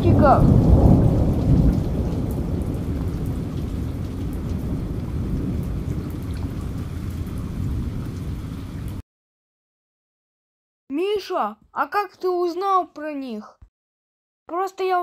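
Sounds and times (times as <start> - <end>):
low rumble of thunder: 0.0 - 9.0
rain crackling: 0.0 - 9.0.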